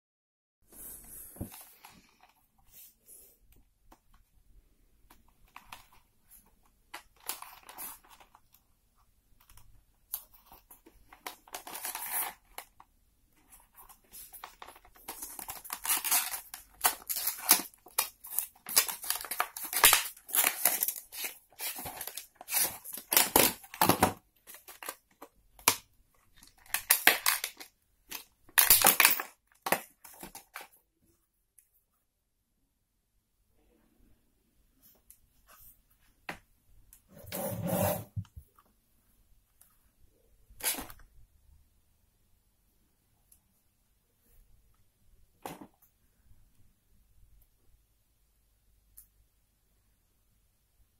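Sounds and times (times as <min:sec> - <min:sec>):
plastic packaging crinkling: 0:13.7 - 0:30.7.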